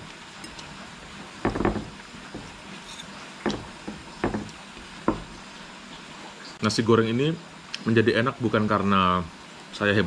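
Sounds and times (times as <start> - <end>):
background hiss: 0.0 - 10.0
cutlery and eating sounds: 2.8 - 3.2.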